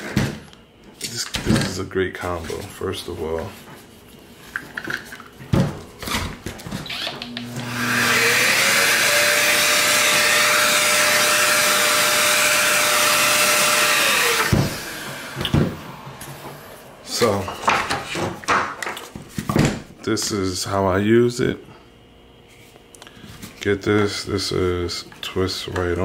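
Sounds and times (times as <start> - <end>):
orbital sander motor whirring: 6.9 - 16.0.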